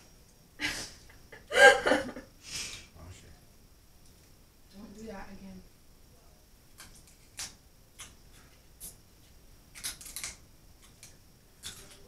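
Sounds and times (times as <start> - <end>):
shells clicking and snapping: 9.7 - 12.0.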